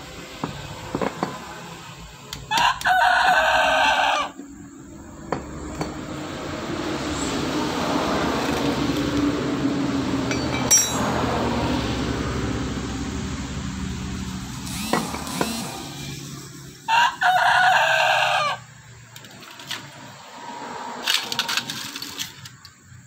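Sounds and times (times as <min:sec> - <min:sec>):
rooster crowing: 0:02.5 - 0:04.4, 0:16.9 - 0:18.7.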